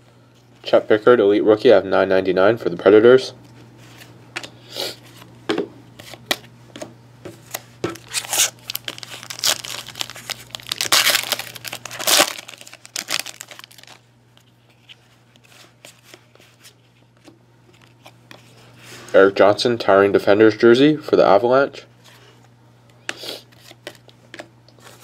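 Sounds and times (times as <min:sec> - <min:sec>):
foil wrapper tearing and crinkling: 0:08.0 - 0:14.0.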